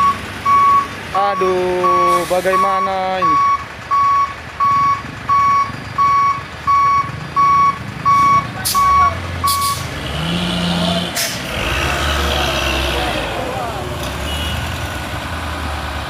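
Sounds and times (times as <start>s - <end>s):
truck reversing alarm beeping: 0.0s - 9.9s
diesel truck engine running: 0.0s - 16.0s.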